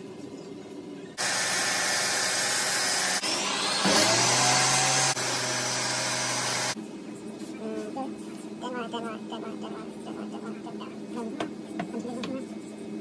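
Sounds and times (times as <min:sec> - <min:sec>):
table saw motor whine: 0:01.2 - 0:06.8.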